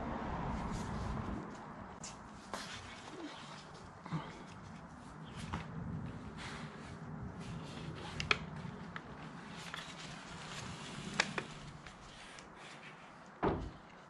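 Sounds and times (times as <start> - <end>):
dull thump: 13.4 - 13.8.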